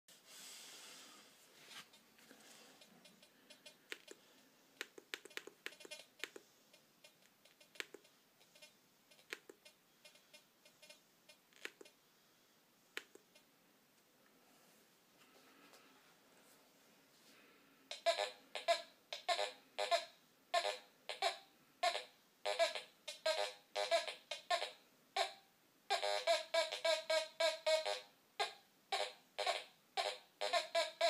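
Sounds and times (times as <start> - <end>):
metal detector buttons clicking: 7.1 - 9.8.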